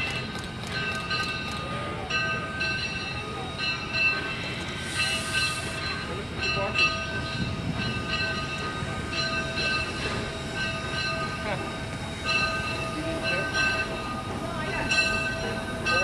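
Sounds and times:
bell ringing: 0.0s - 16.0s
train coaches rumbling: 0.0s - 16.0s
steam hiss: 3.3s - 16.0s.

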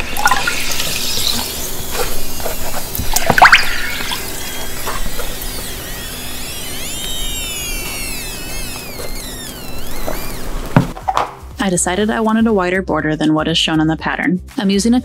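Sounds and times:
wet leather squealing: 0.0s - 10.7s.

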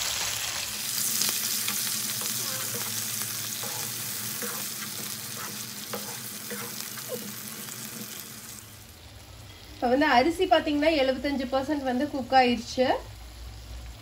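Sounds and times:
chicken sizzling in hot oil: 0.0s - 14.0s
spatula scraping and tapping pan: 1.7s - 8.2s.

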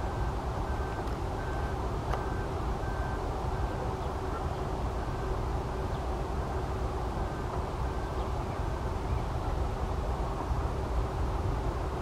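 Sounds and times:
distant outdoor rumble: 0.0s - 12.0s
faint high beep: 0.7s - 3.8s.

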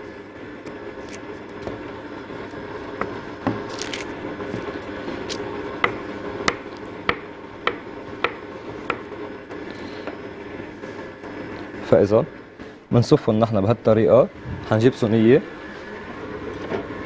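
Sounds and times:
knife chopping dough on worktop: 5.3s - 9.1s.

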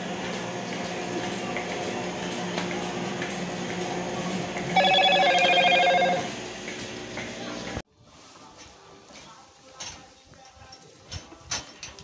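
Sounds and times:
milking machine humming: 0.0s - 7.8s
pulsing electronic alert tone: 4.8s - 6.3s.

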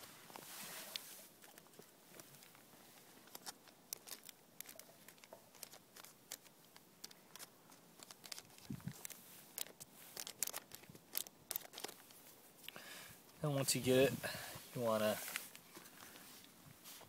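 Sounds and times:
plastic packet crinkling: 0.3s - 12.7s.

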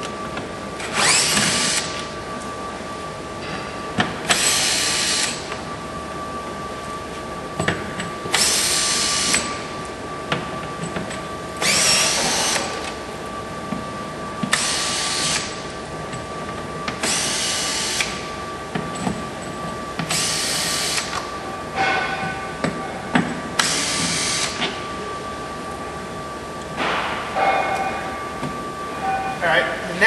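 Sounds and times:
cordless drill running: 0.9s - 2.0s, 4.3s - 5.4s, 11.6s - 12.8s, 14.6s - 15.5s, 17.0s - 18.2s, 20.1s - 21.2s, 23.6s - 24.6s.

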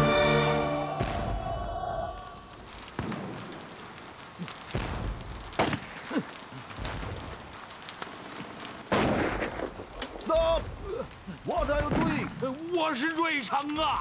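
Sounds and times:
rain falling on wet ground: 0.0s - 14.0s
sudden bangs: 1.0s - 1.8s, 8.9s - 10.8s, 11.7s - 12.5s.

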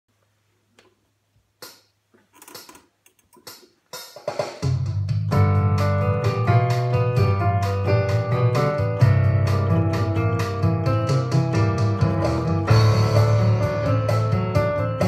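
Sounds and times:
electronic keyboard chords: 5.0s - 15.0s.

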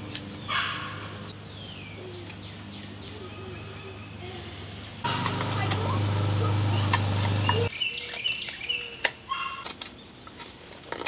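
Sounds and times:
low engine hum: 4.0s - 7.7s.

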